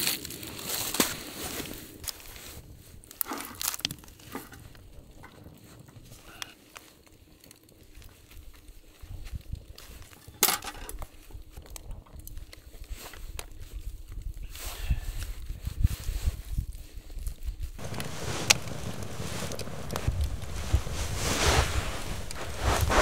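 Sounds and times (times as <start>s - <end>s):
hands rustling raw chicken: 17.8s - 23.0s.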